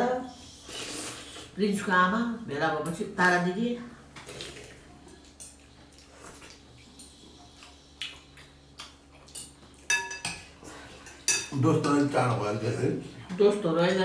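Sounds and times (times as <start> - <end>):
utensils clinking against ceramic bowls: 9.3 - 12.0.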